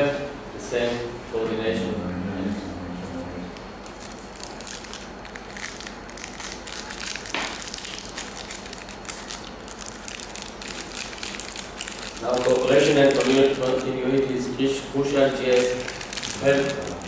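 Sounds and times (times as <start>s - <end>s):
crackling crinkling noise: 3.7s - 17.0s.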